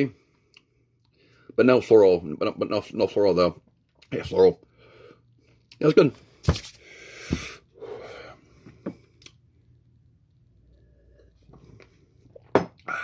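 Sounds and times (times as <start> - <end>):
breath out: 6.8 - 9.0.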